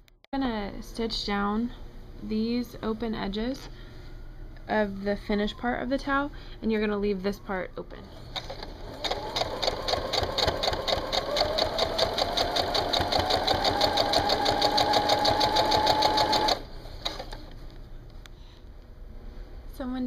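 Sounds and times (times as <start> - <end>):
sewing machine stitching: 8.1 - 17.5.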